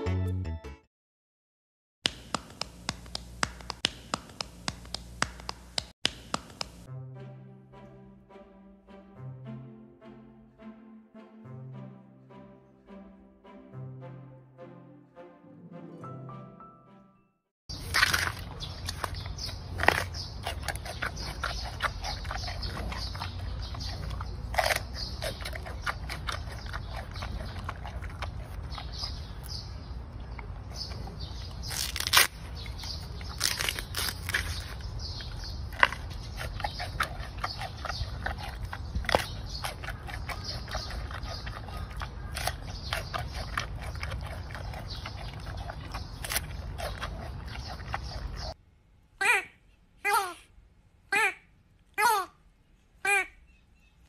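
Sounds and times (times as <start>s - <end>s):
panda chewing bamboo: 17.7s - 29.6s, 30.8s - 48.6s.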